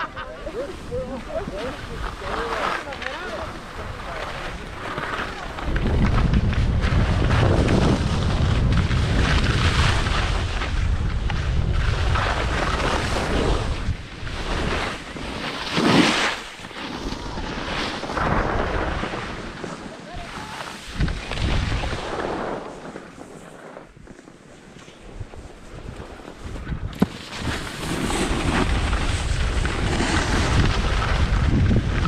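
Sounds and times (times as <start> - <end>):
wind buffeting microphone: 0.0 - 15.2, 20.2 - 22.8, 25.1 - 32.0
skis scraping packed snow: 0.0 - 32.0.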